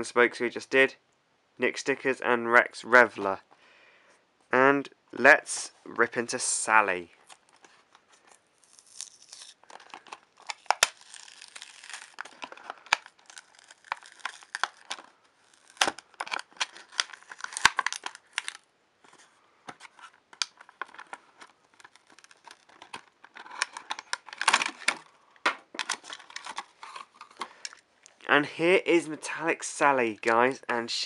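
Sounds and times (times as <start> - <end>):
plastic packaging crinkling and tearing: 7.2 - 27.9.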